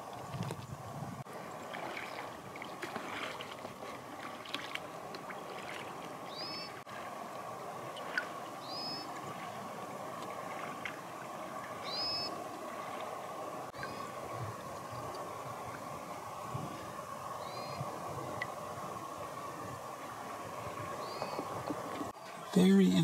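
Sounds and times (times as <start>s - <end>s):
boat running on water: 0.0s - 23.0s
high bird calls: 6.3s - 6.8s, 8.6s - 9.1s, 11.8s - 12.4s.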